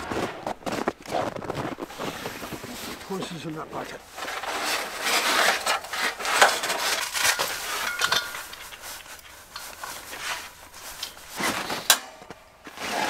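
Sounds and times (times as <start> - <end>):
hose rustling and scraping: 0.0 - 13.0
metallic clinks of hose fittings: 6.4 - 11.4.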